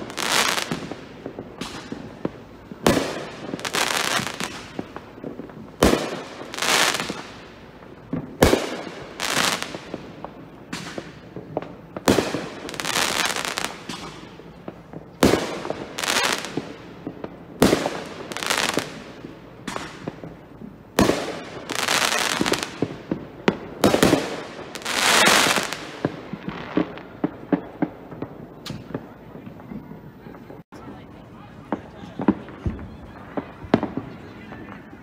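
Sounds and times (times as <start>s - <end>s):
small firework pops: 0.0s - 30.6s, 31.6s - 35.0s
fireworks bursting: 0.0s - 35.0s.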